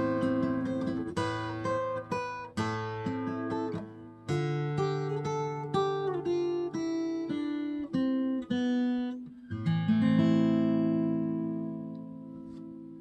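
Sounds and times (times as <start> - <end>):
acoustic guitar chord strummed: 0.0 - 13.0
acoustic guitar plucked notes: 0.0 - 13.0.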